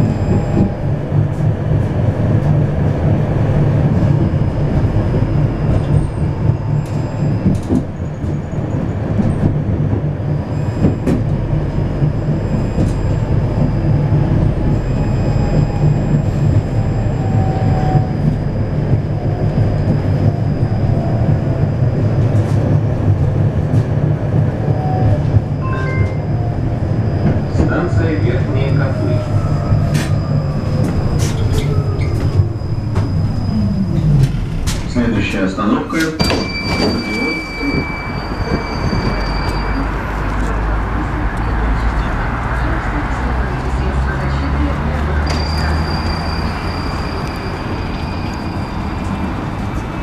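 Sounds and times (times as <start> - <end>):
tram wheels rumbling on rails: 0.0 - 50.0.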